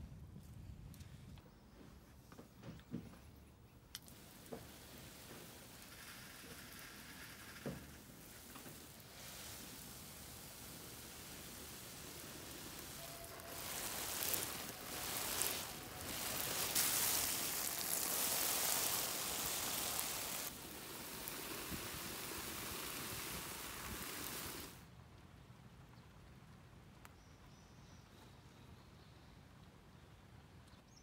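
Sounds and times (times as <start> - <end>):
rustling hiss: 0.4 - 25.0.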